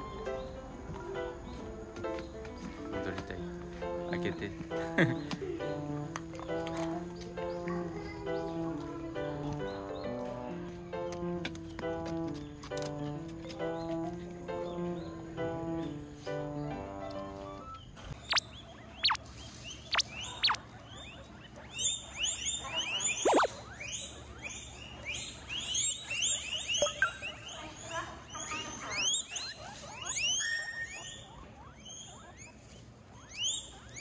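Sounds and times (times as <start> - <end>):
guinea pigs squealing: 6.1 - 10.3, 17.2 - 34.0.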